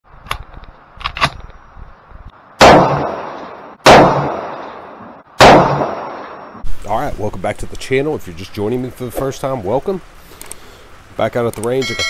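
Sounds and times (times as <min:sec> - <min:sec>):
rifle shots ringing: 0:02.6 - 0:06.5.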